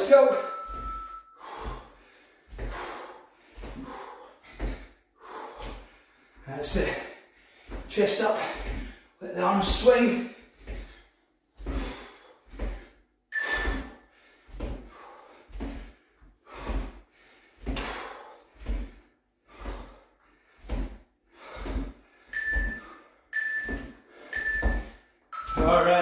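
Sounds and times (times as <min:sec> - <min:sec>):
interval timer beeps: 0:00.3 - 0:01.4, 0:13.3 - 0:14.0, 0:22.3 - 0:26.0
feet thumping on hard floor: 0:00.5 - 0:05.9, 0:13.5 - 0:17.0, 0:20.6 - 0:26.0.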